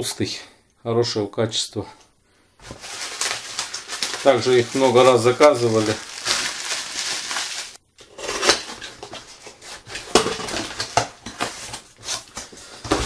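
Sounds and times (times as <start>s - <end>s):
rustling in box: 2.6s - 7.8s.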